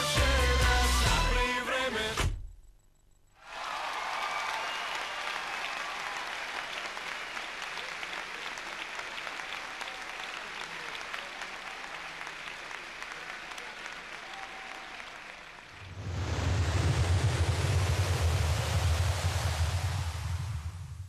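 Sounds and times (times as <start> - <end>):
large audience applauding: 3.4 - 16.0.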